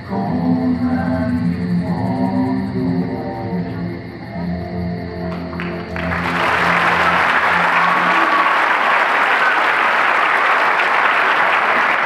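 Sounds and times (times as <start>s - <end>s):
audience applauding: 5.3s - 12.0s
dance music: 5.6s - 8.6s.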